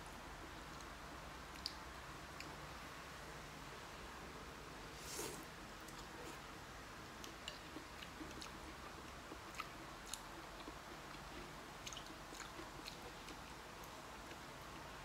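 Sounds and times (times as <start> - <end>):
faint chewing: 5.0 - 6.5, 7.2 - 15.0.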